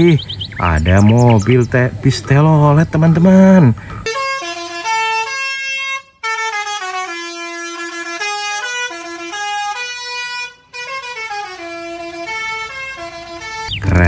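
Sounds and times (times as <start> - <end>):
musical air horn tune: 4.0 - 13.7.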